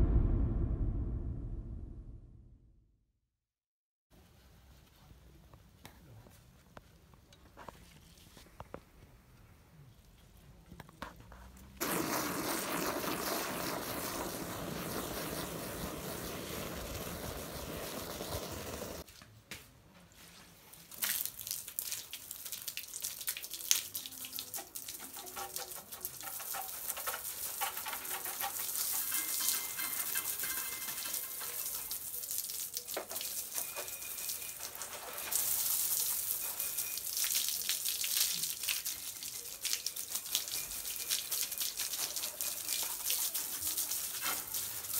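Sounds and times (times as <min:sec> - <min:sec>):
garden hose spraying: 0:11.8 - 0:19.1, 0:20.7 - 0:44.9
water splashing and dripping: 0:11.8 - 0:19.1, 0:20.8 - 0:44.9.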